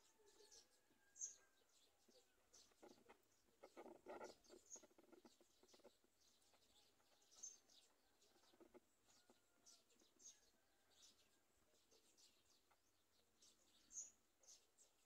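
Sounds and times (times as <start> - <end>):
bird high-pitched peeps: 2.1 - 7.8
soft scratchy ticks: 2.6 - 9.4.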